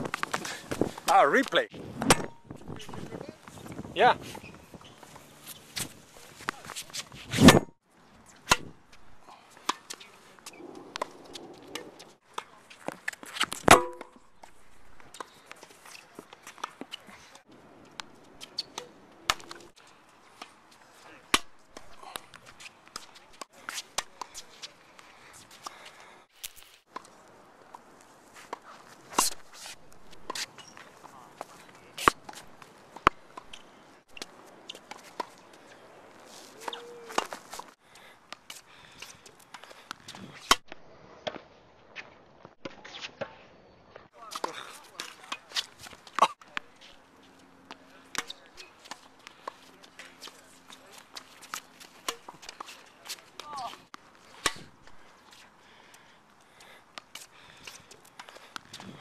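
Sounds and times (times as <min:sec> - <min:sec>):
shoe squeak: 0:04.2 - 0:07.7, 0:36.5 - 0:37.2
racket hitting tennis ball: 0:09.6 - 0:14.3, 0:18.5 - 0:19.7, 0:32.0 - 0:33.6, 0:36.5 - 0:37.7, 0:51.1 - 0:54.7
tennis racket hitting ball: 0:13.3 - 0:14.2, 0:51.1 - 0:54.7.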